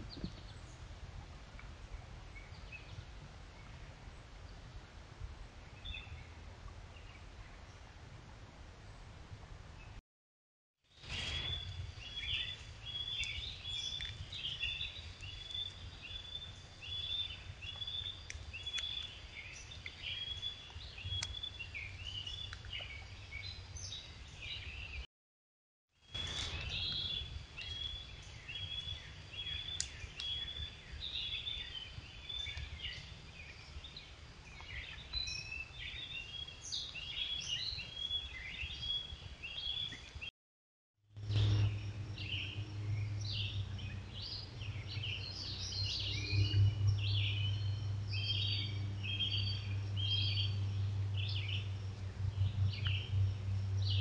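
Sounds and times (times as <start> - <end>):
low steady hum: 0.0 - 10.0, 11.0 - 25.0, 41.1 - 54.0
small birds chirping and singing: 5.6 - 7.8, 10.9 - 25.1, 26.0 - 40.3, 41.2 - 54.0.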